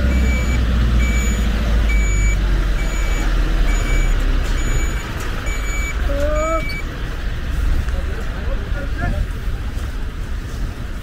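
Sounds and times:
reversing alarm beeping: 0:00.0 - 0:06.9
heavy vehicle engine running: 0:00.0 - 0:11.0.

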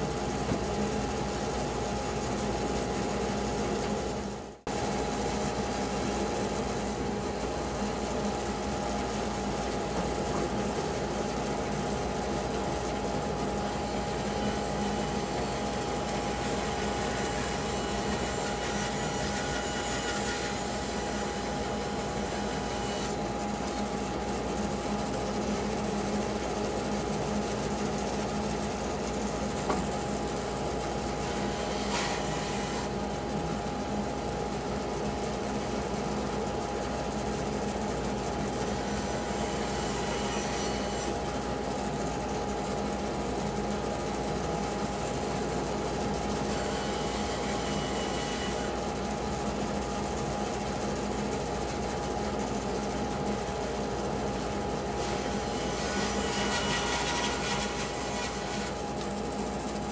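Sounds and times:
bandsaw motor hum: 0:11.5 - 0:27.3, 0:54.4 - 0:59.9
bandsaw cutting log: 0:16.5 - 0:21.4, 0:31.2 - 0:32.9, 0:55.0 - 0:58.9.

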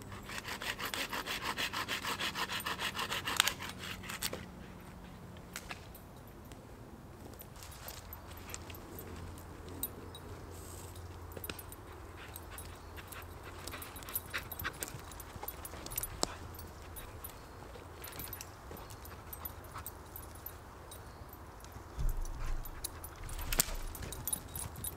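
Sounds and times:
dry twigs snapping and rustling: 0:23.3 - 0:24.0.

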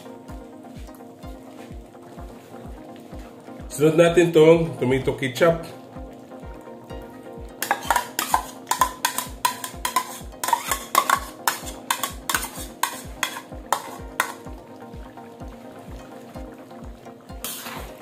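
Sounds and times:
background music with steady beat: 0:00.0 - 0:18.0
metal spatula scraping plastic bowl: 0:07.6 - 0:14.4.

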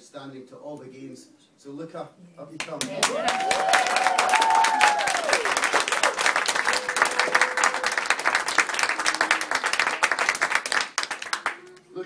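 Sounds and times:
audience applauding: 0:02.6 - 0:11.8.

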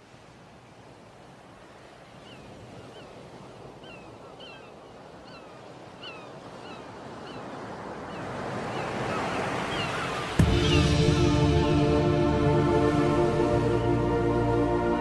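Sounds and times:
surf washing in: 0:05.2 - 0:15.0
music track: 0:10.4 - 0:15.0.

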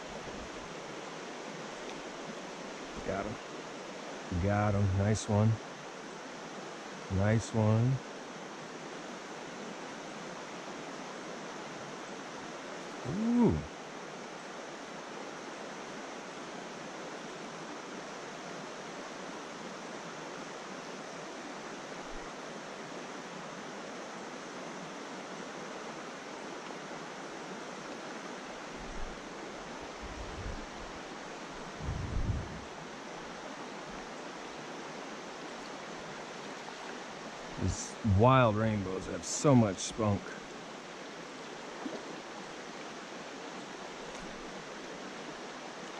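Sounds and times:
stream rushing over rocks: 0:00.0 - 0:45.9
dull low thumps: 0:31.8 - 0:32.6.

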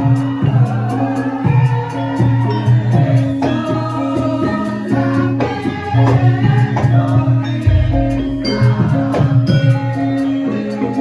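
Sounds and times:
gamelan music: 0:07.4 - 0:11.0
person singing: 0:07.6 - 0:10.1
deep low tone: 0:07.7 - 0:09.3.

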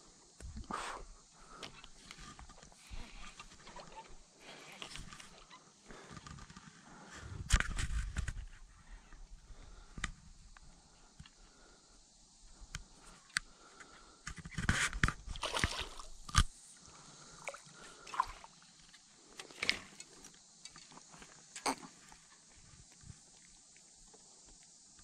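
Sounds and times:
fish splashing at water surface: 0:15.3 - 0:16.2, 0:17.3 - 0:18.5.

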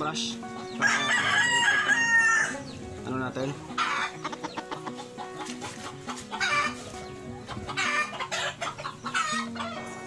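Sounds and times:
chickens clucking: 0:00.0 - 0:10.0.

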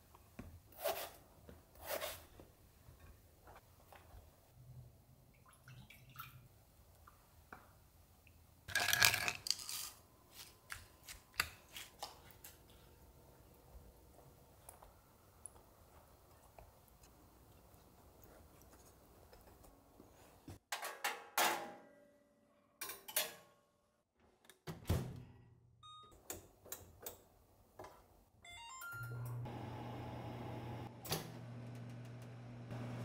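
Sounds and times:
oven humming: 0:29.0 - 0:33.0.

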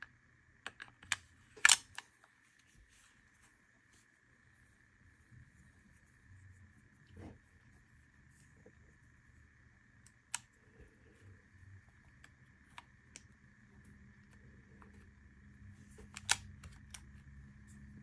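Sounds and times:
pistol parts clicking and snapping: 0:01.6 - 0:02.0, 0:16.2 - 0:16.4.

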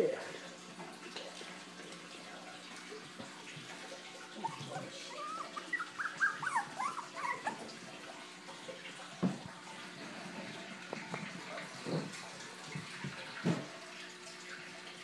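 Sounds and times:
puppies whimpering: 0:04.3 - 0:07.9.

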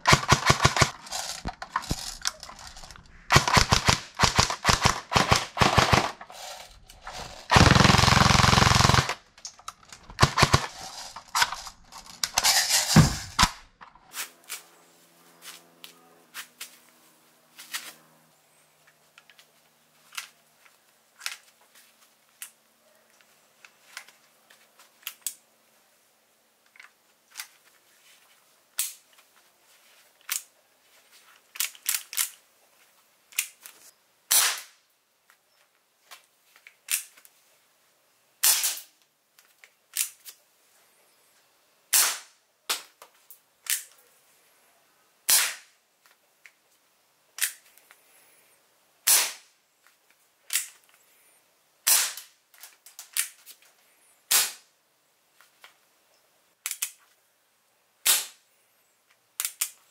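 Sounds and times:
airsoft revolver shots: 0:03.3 - 0:06.3, 0:07.1 - 0:09.2, 0:10.1 - 0:10.7, 0:34.3 - 0:34.7, 0:41.9 - 0:42.3, 0:45.3 - 0:45.7, 0:49.1 - 0:49.4, 0:51.9 - 0:52.2.

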